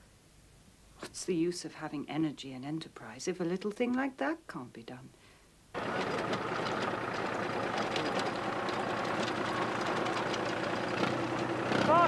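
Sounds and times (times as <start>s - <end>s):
motor sledge engine running: 5.8s - 12.0s
rapid clicking of tracks: 5.8s - 12.0s.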